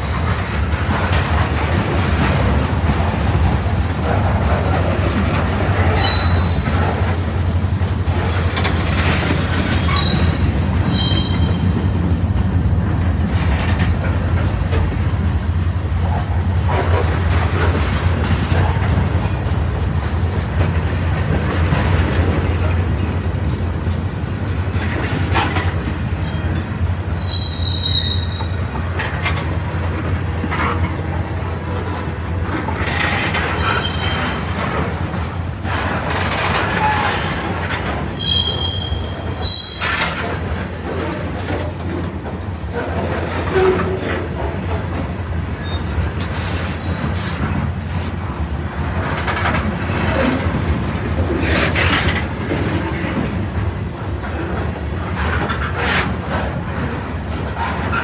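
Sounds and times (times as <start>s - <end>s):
train clicks and clanks: 0.0s - 58.0s
train wheels rumbling on rail: 0.0s - 58.0s
high-pitched wheel squeals: 6.0s - 6.7s, 9.8s - 11.6s, 27.2s - 28.6s, 38.2s - 40.0s.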